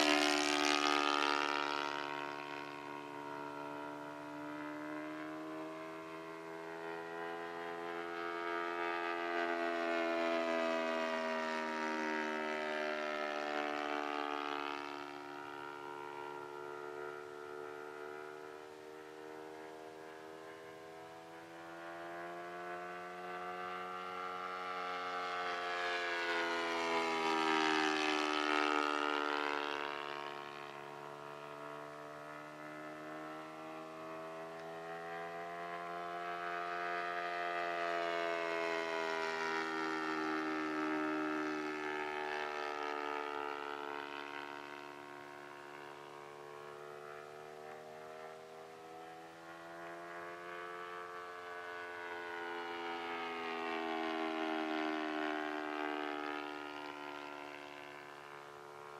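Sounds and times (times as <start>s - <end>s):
model plane engine flying past: 0.0s - 58.9s.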